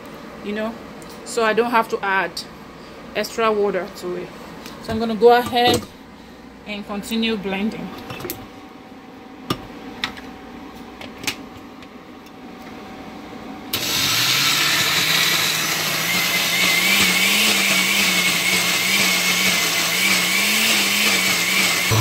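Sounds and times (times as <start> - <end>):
blender motor whining: 13.7 - 22.0.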